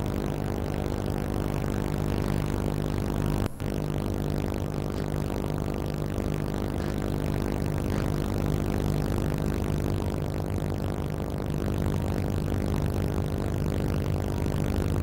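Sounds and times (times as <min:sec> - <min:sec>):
diesel engine throbbing: 0:00.0 - 0:11.5.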